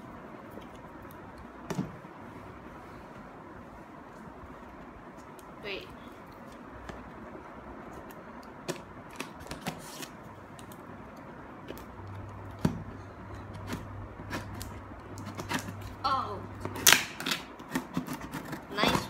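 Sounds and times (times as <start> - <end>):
scraping at packing tape: 16.7 - 19.0.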